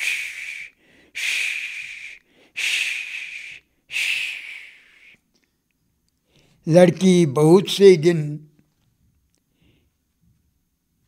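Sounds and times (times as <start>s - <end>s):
man breathing heavily: 0.0s - 5.2s.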